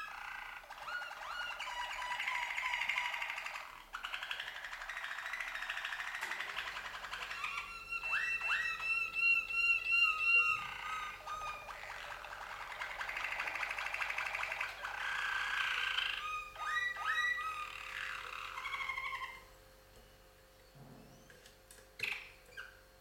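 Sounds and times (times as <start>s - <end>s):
canaries singing: 0.0s - 19.6s, 20.4s - 23.0s.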